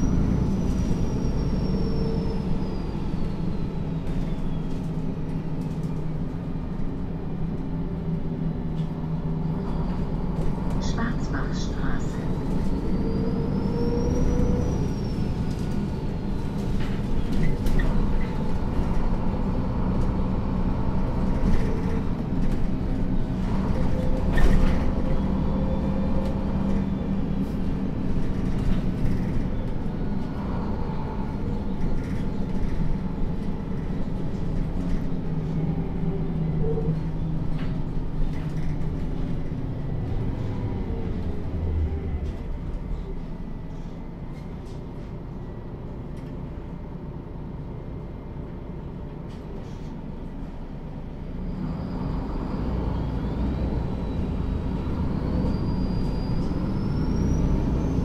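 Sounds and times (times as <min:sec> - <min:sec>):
bus diesel engine running: 0:00.0 - 0:58.0
road noise: 0:00.0 - 0:58.0.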